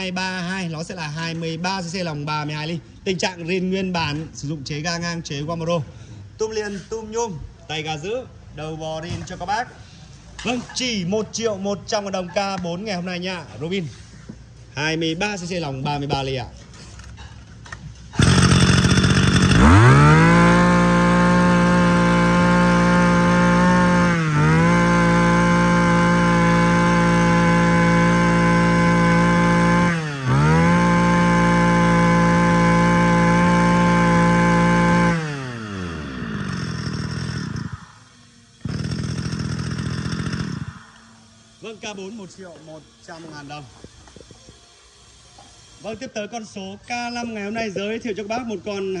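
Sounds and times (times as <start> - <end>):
brush cutter engine revving: 18.1 - 43.8.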